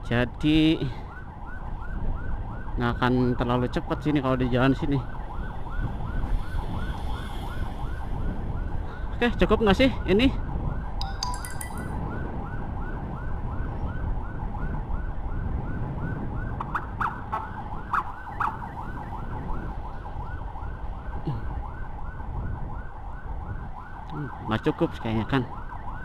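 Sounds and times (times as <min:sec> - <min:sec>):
emergency siren yelping: 0:12.0 - 0:24.7, 0:25.4 - 0:26.0.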